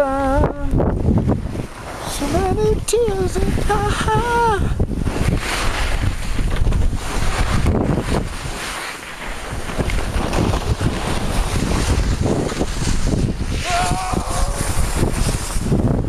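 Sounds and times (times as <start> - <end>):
wind buffeting microphone: 0.0 - 16.0
skis hissing on snow: 5.1 - 6.4, 7.0 - 15.8.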